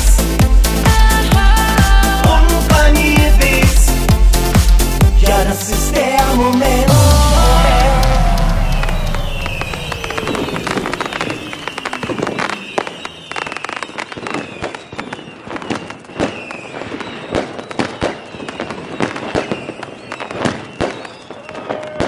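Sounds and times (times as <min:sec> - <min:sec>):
fireworks bangs and crackles: 0:00.0 - 0:22.0
fireworks whistles: 0:06.9 - 0:22.0.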